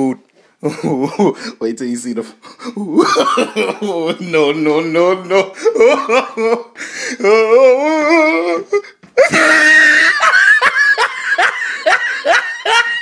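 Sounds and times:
yelps and whoops: 0:09.2 - 0:10.3.

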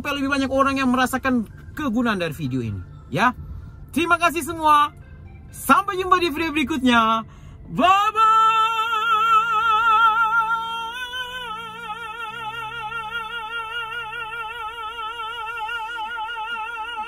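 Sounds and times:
soft background music: 0:00.0 - 0:17.0
man singing high note with vibrato: 0:07.7 - 0:17.0.

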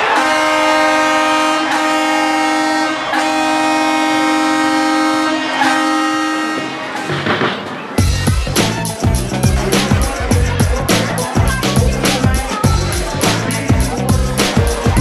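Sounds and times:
goal horn blasting: 0:00.0 - 0:07.4.

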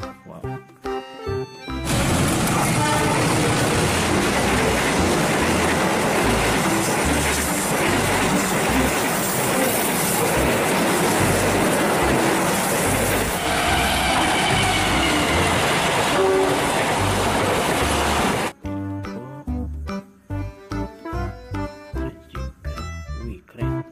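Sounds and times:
wheels thumping on track: 0:01.8 - 0:13.3
train carriages passing: 0:01.8 - 0:18.5.

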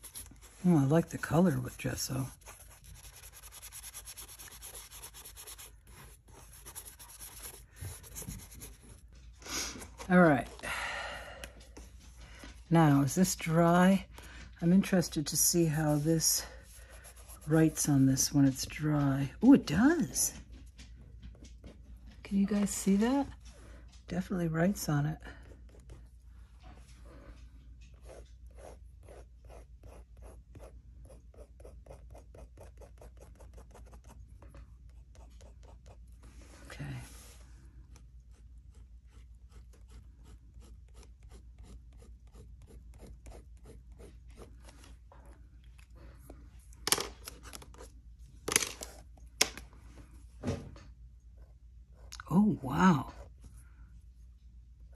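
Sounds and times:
paintbrush scrubbing on paper: 0:00.0 - 0:10.2, 0:14.8 - 0:18.4.

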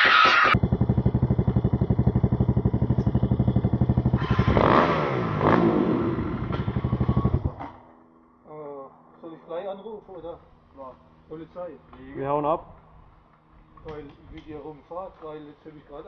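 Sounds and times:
engine revving: 0:00.0 - 0:07.9
dirt bike engine idling: 0:00.6 - 0:08.0.

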